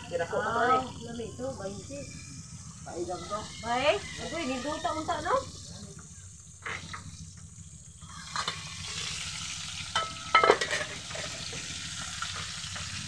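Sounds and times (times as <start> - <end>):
chicken sizzling in hot oil: 7.9 - 13.0.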